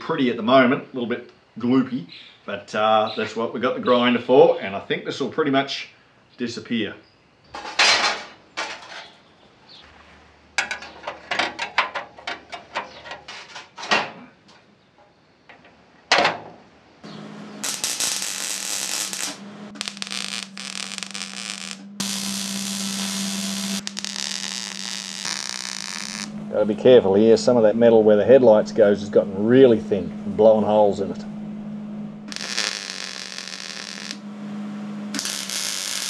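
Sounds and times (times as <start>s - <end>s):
sheet metal clicks and knocks: 10.6s - 14.2s
welding arc crackling and buzzing: 17.5s - 26.4s, 32.3s - 34.2s, 35.1s - 36.0s.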